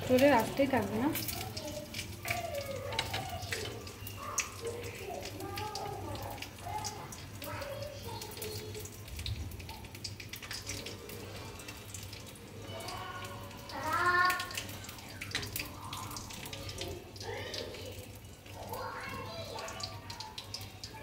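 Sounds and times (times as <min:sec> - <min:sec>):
butter and oil sizzling: 0:00.0 - 0:21.0.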